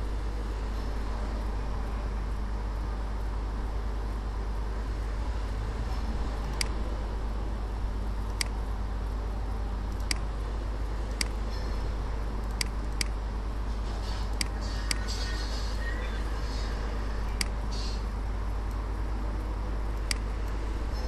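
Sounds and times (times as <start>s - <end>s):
low hum and hiss: 0.0s - 21.0s
computer mouse clicks: 6.5s - 6.8s, 8.2s - 8.7s, 9.9s - 10.3s, 11.1s - 11.7s, 12.4s - 13.2s, 14.0s - 15.8s, 16.6s - 18.8s, 20.0s - 20.6s.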